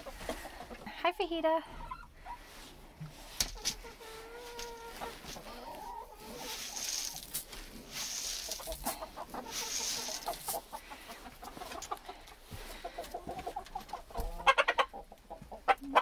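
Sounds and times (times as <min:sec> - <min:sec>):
chickens clucking: 0:00.0 - 0:16.0
rustling hiss: 0:02.4 - 0:12.0
loud chicken calls: 0:03.5 - 0:07.3, 0:07.9 - 0:16.0.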